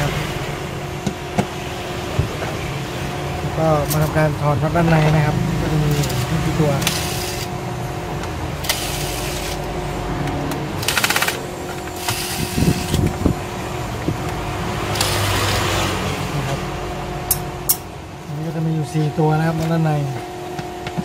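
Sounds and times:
electric screwdriver whirring: 6.8s - 7.5s, 8.6s - 9.7s, 10.8s - 13.2s, 14.9s - 15.5s.

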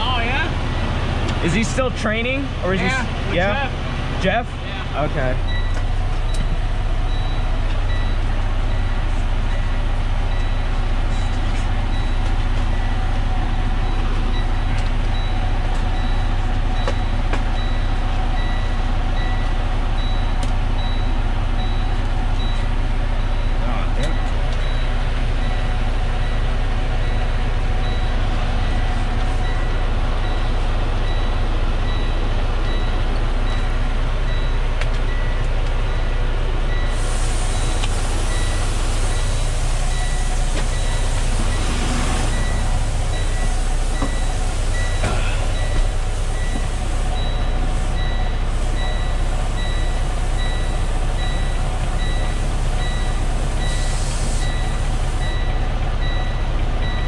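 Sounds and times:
diesel engine idling: 0.0s - 57.0s
high electronic beep: 5.0s - 37.0s, 37.6s - 57.0s.

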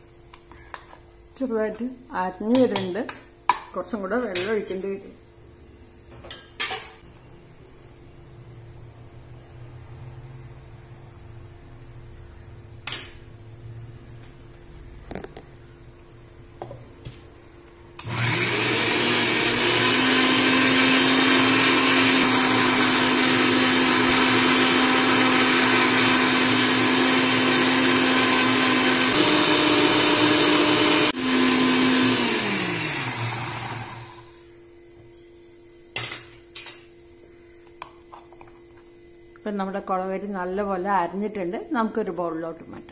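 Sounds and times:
mixer grinder motor whining: 18.0s - 34.5s.

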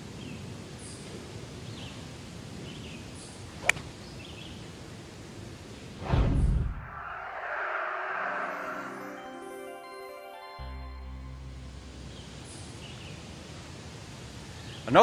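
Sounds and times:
faint outdoor background: 0.0s - 15.0s
loud low rumble: 11.0s - 12.5s.

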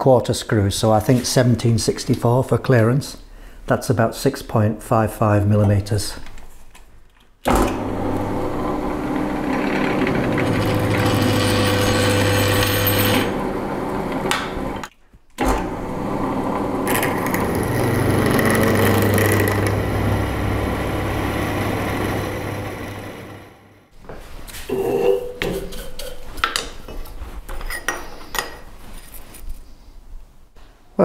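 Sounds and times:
drill motor hum: 7.5s - 14.3s, 15.7s - 23.8s
drill bit cutting steel: 9.4s - 13.4s, 16.8s - 23.3s.

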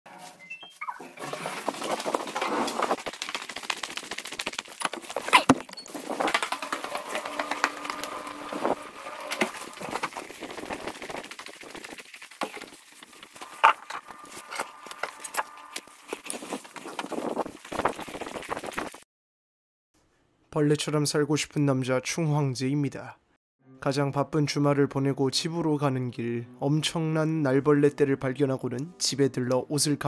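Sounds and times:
footsteps: 0.1s - 19.0s.

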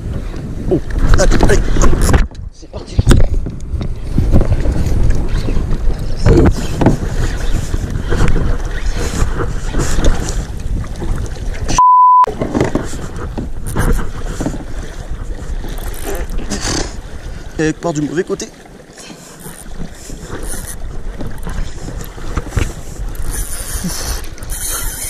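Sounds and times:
wind buffeting microphone: 0.0s - 17.6s, 19.6s - 25.0s
water splashing around kayak: 0.0s - 25.0s
short high beep: 11.8s - 12.3s
spinning reel cranking: 23.2s - 25.0s.

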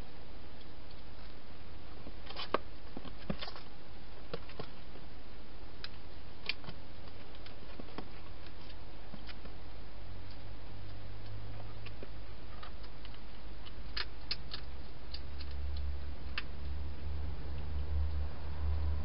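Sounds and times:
steady low hum: 0.0s - 19.0s
hedgehog chewing and clicking: 10.2s - 18.8s.

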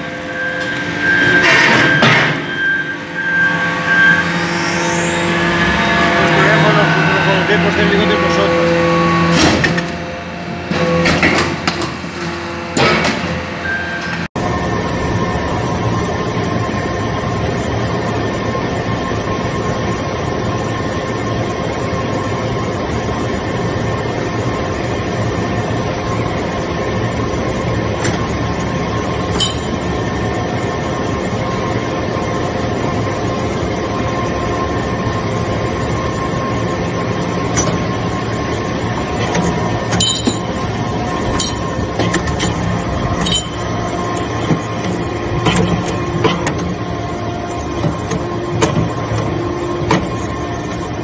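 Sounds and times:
press machine humming: 0.0s - 14.3s, 36.5s - 51.0s
hydraulic unit tones: 0.0s - 17.3s, 23.7s - 51.0s.

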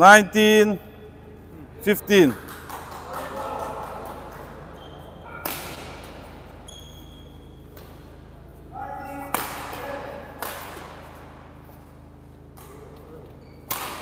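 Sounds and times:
rackets hitting shuttlecock: 4.1s - 6.7s, 7.3s - 8.4s, 9.1s - 14.0s.

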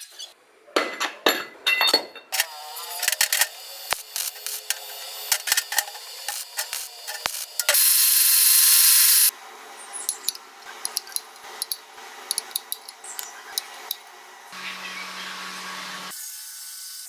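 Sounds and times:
steel pieces clicking and clinking: 1.7s - 8.0s, 10.0s - 14.0s
loud steady hissing: 2.4s - 12.9s.

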